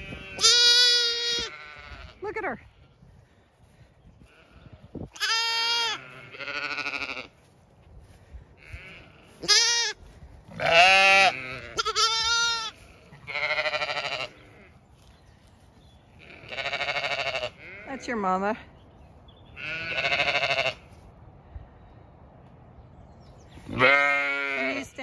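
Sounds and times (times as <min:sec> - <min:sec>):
lambs bleating: 0:00.0 - 0:02.9, 0:04.2 - 0:07.4, 0:08.6 - 0:14.8, 0:16.2 - 0:18.3, 0:19.6 - 0:21.0, 0:23.7 - 0:25.0.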